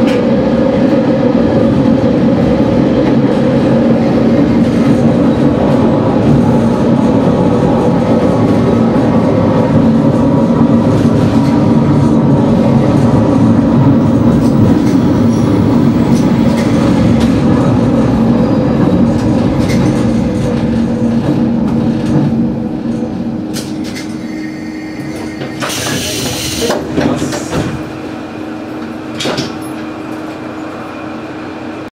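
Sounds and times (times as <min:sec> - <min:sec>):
railcar engine hum: 0:00.0 - 0:31.9
railcar wheels rumbling on track: 0:00.0 - 0:31.9
air hissing: 0:24.2 - 0:27.7.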